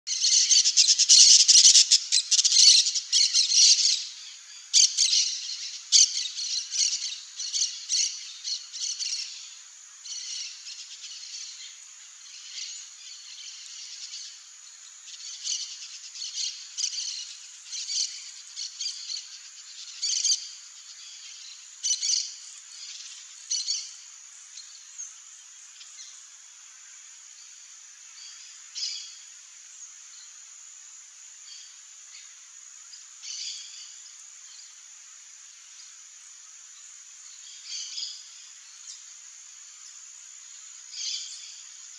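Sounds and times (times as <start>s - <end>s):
birds calling: 0.1s - 9.3s.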